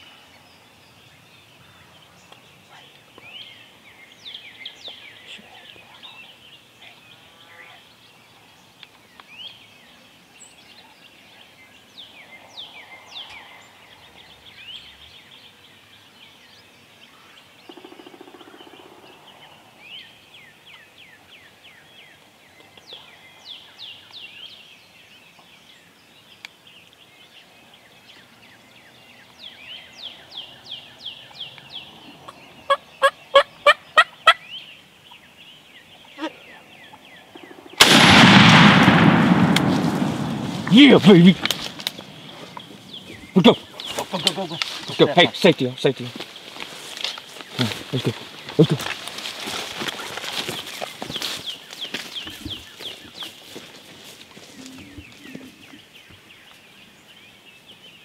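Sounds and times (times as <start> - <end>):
songbirds singing: 0.0 - 58.0
turkey gobbling: 32.3 - 34.4.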